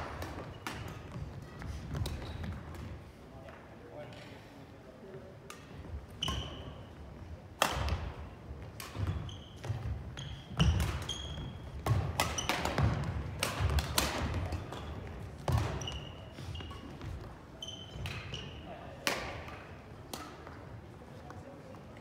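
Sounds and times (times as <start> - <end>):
rackets striking shuttlecock: 0.0 - 2.9, 7.6 - 16.0, 18.0 - 20.6
sneaker squeaks: 0.0 - 3.0, 6.0 - 7.1, 7.8 - 13.8, 14.4 - 19.0.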